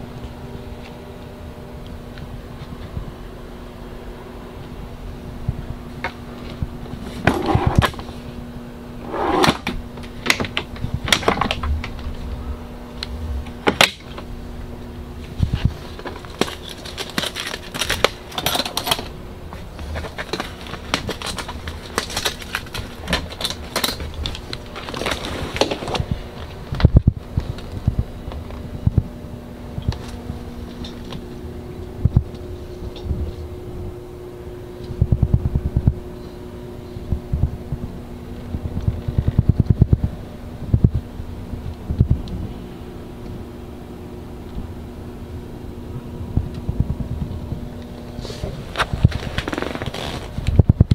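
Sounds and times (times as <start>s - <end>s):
low hum: 0.0s - 50.9s
clicks taps and rustles: 15.2s - 29.0s.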